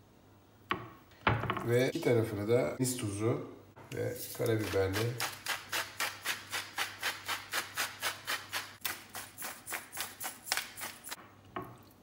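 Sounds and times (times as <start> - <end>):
spice mill grinding: 4.3 - 11.2.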